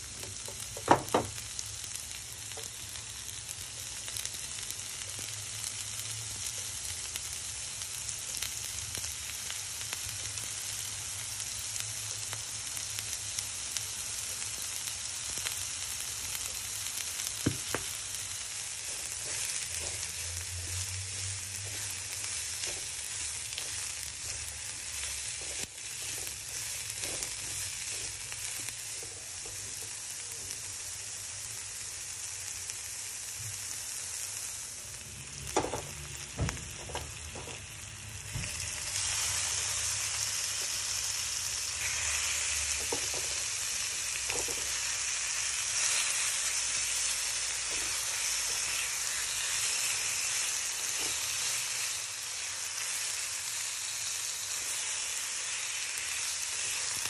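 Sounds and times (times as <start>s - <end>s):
vegetables sizzling in a frying pan: 0.0s - 57.0s
spatula stirring: 18.6s - 29.7s.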